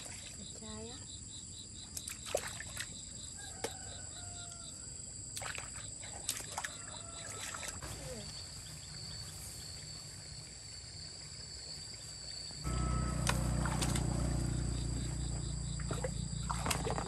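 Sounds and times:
high insect buzz with chirp: 0.0s - 17.0s
hands splashing in muddy water: 5.4s - 8.2s, 15.8s - 17.0s.

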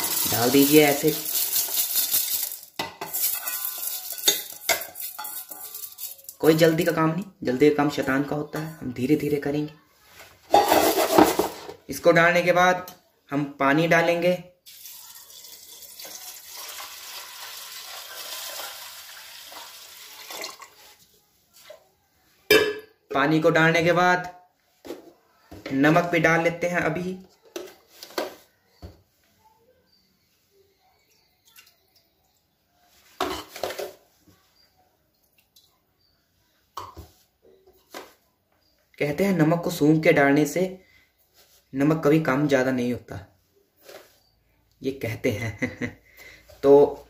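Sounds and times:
steel utensils clinking: 0.0s - 6.4s
water pouring into a pot: 0.0s - 6.4s, 14.6s - 21.0s.

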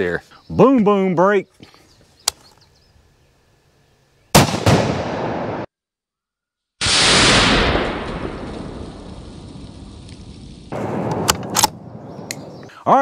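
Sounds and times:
exploding target boom: 4.4s - 5.7s, 6.8s - 9.1s
rifle shot: 4.4s - 5.7s
loud explosion boom rumbling: 6.8s - 10.0s.

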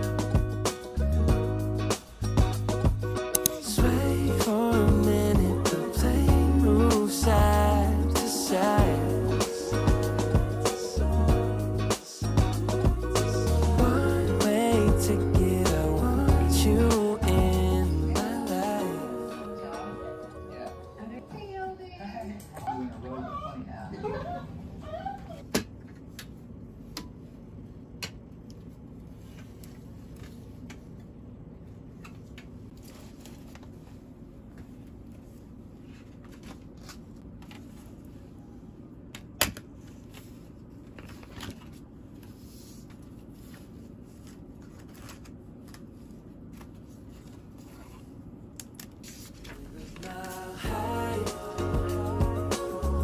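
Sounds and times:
sharp click: 3.3s - 3.6s.

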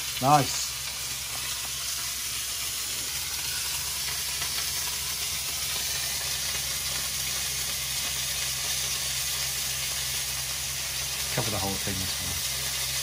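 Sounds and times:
food sizzling in a wok: 0.0s - 13.0s.

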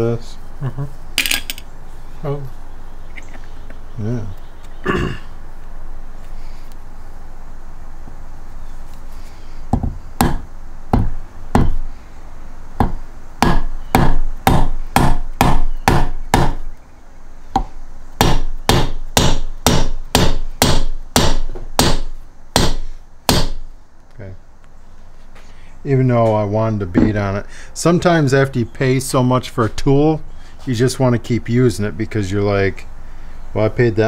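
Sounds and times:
mallet striking metal driver: 17.6s - 23.6s.

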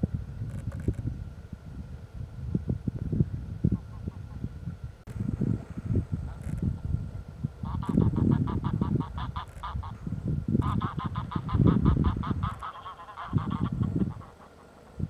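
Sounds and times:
wind rumble on microphone: 0.0s - 15.0s
geese honking: 7.6s - 10.0s, 10.6s - 14.9s.

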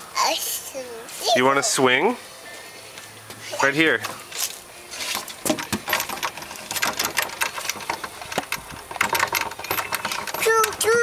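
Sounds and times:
toy steering wheel rattling: 4.9s - 11.0s.

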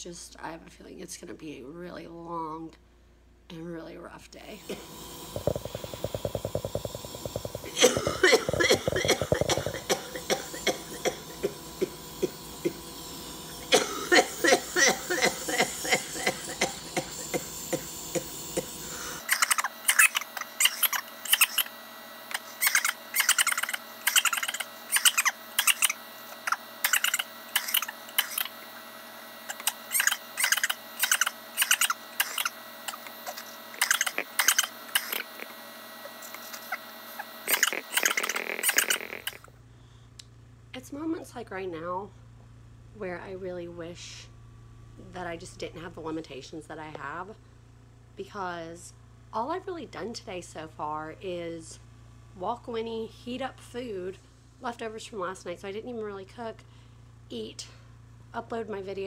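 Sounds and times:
machine rapid pulsing: 4.6s - 39.4s
woman coughing: 7.6s - 12.8s, 13.7s - 18.8s.

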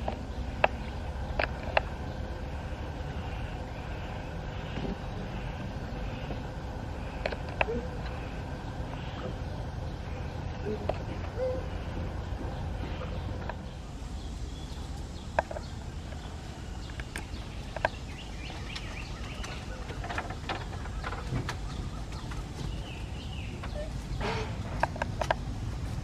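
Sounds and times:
clucking and chirping animal calls: 0.0s - 26.0s.

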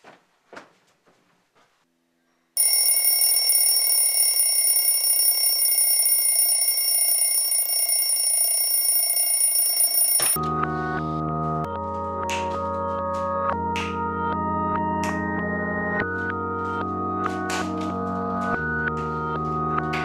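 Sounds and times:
bell alarm ringing: 2.6s - 10.4s.

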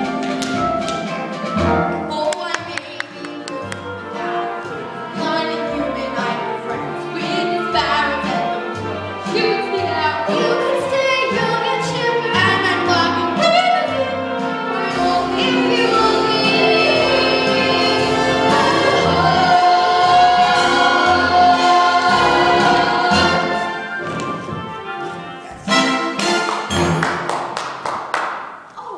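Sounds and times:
instrumental accompaniment: 0.0s - 28.5s
voices singing: 14.7s - 24.0s.

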